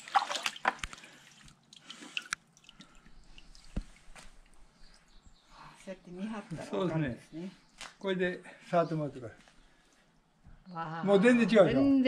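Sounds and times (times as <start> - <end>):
water dripping and trickling: 0.0 - 5.4.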